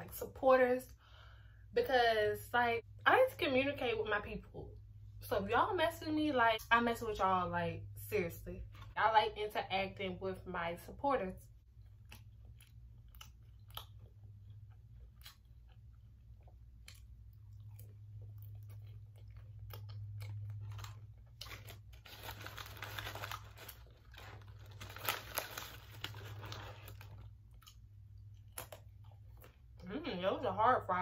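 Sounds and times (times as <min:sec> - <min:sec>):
chewing crunchy chicken nugget: 0:11.7 - 0:29.8.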